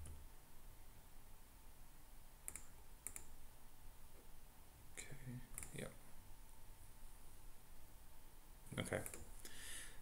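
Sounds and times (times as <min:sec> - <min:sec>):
faint computer mouse clicks: 0:02.5 - 0:03.3.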